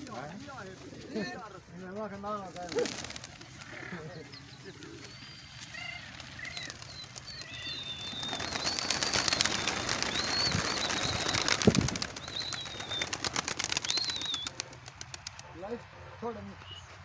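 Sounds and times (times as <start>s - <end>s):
pigeon wings flapping: 2.4s - 3.9s, 4.6s - 15.5s.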